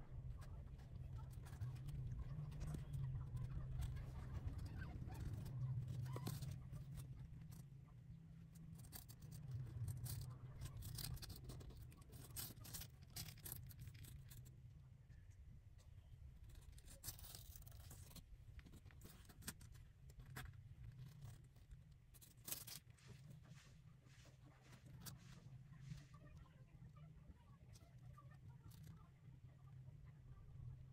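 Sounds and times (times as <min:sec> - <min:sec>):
low steady hum: 0:00.0 - 0:30.9
kittens scratching and rustling on cloth: 0:16.5 - 0:26.4.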